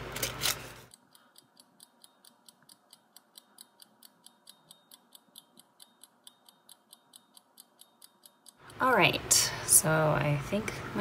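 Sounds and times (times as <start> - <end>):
fast clock ticking: 0.9 - 9.2.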